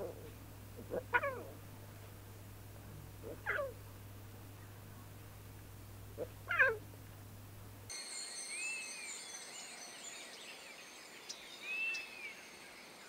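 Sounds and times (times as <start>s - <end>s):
lion cubs mewing: 0.0s - 1.7s, 3.0s - 3.8s, 6.2s - 6.9s
steady low hum: 0.0s - 7.9s.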